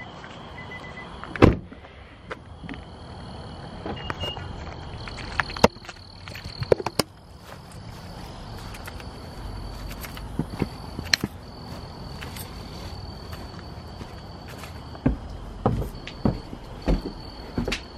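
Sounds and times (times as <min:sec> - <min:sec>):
footsteps: 0:00.0 - 0:02.9, 0:04.4 - 0:17.9
crickets chirping: 0:00.0 - 0:17.9
loud thump: 0:01.4 - 0:01.7.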